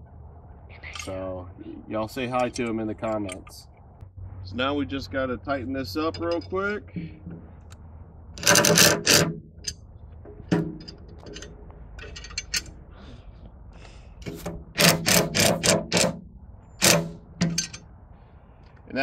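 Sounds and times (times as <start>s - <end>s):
cordless driver bursts: 14.8s - 16.2s.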